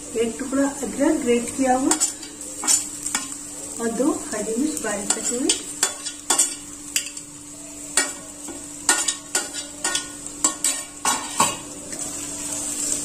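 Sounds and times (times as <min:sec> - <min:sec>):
vegetables sizzling in oil: 0:00.0 - 0:13.0
utensils clinking against pan: 0:01.8 - 0:03.4, 0:05.0 - 0:07.3, 0:08.0 - 0:12.0.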